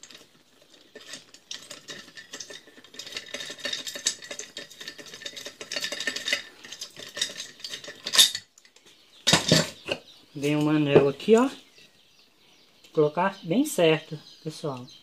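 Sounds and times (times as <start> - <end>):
small metal parts clicking and rattling: 0.0 - 10.0.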